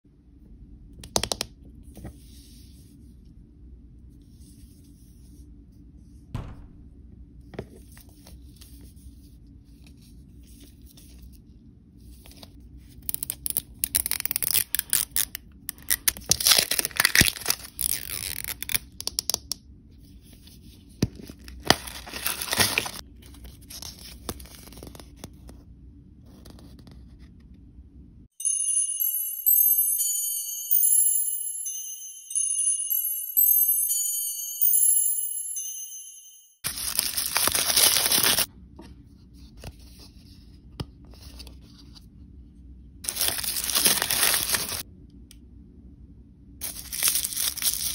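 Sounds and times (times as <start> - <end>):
plastic wrap crinkling: 13.1 - 19.0, 21.4 - 23.1, 36.7 - 38.5, 43.0 - 44.8, 46.6 - 47.9
chiming music tune: 28.4 - 36.6.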